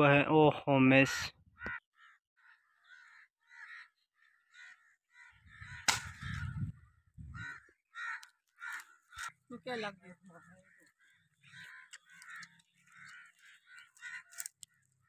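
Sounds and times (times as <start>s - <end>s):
bird calling: 1.6s - 15.0s
sharp crack: 5.8s - 6.2s.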